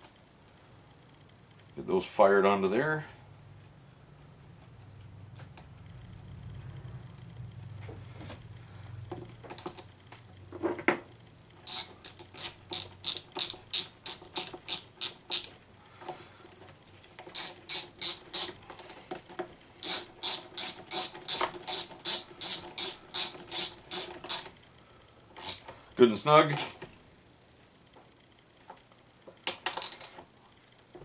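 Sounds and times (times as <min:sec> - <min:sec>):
socket ratchet clicking: 0:11.6 - 0:15.6, 0:17.3 - 0:18.6, 0:19.8 - 0:24.6, 0:25.4 - 0:25.7, 0:26.5 - 0:26.8, 0:29.7 - 0:30.2.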